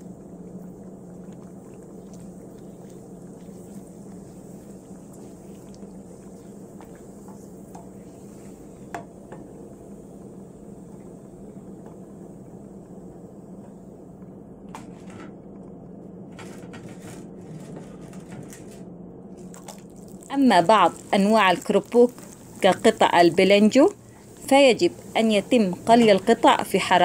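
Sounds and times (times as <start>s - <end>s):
oil frying hum: 0.0s - 15.6s, 16.2s - 27.0s
sharp crackles and clicks: 19.4s - 26.5s.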